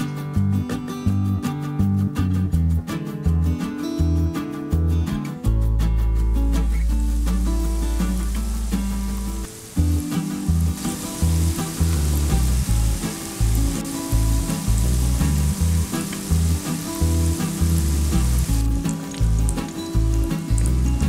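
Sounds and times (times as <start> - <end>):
background music with bass line: 0.0 - 21.0
food deep-frying in hot oil: 6.8 - 21.0.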